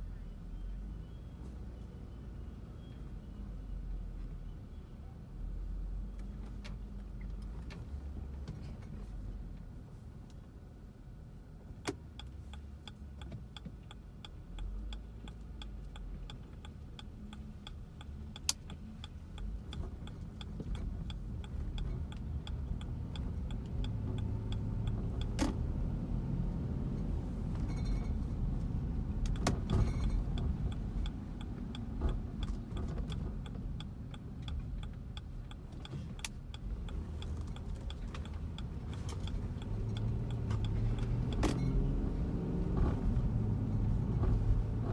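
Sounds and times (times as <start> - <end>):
car cabin engine noise: 0.0 - 44.9
steady light ticking: 11.8 - 25.4, 29.2 - 41.5
tyres on wet road: 11.9 - 44.9.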